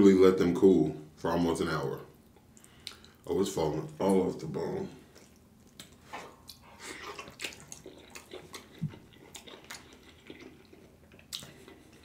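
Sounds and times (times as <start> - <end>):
wet chewing and mouth sounds: 2.2 - 3.2, 5.0 - 12.0.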